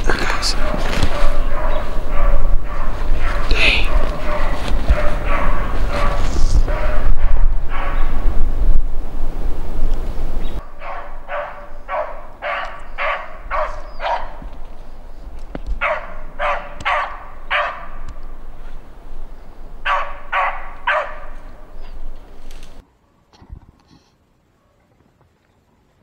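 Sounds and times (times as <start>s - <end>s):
low rumble on microphone: 0.0s - 10.6s
dogs baying: 0.1s - 8.2s, 10.6s - 14.4s, 15.8s - 18.0s, 19.8s - 21.9s.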